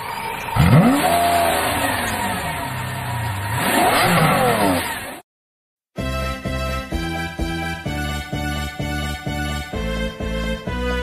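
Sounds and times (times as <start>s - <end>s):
car engine revving: 0.4s - 5.2s.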